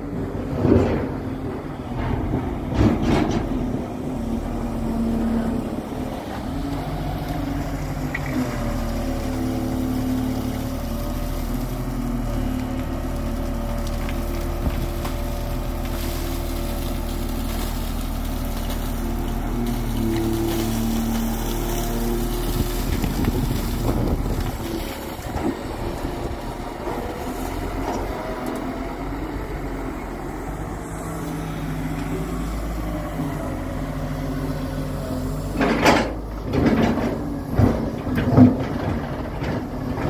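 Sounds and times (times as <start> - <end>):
excavator diesel engine running: 0.0 - 40.0.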